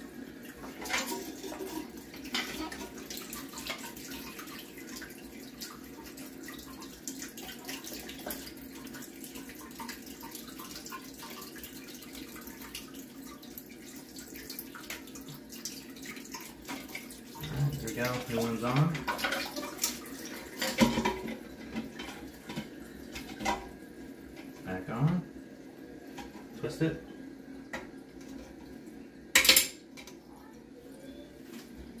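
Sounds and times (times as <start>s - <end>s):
water splashing and dripping: 0.5s - 23.7s.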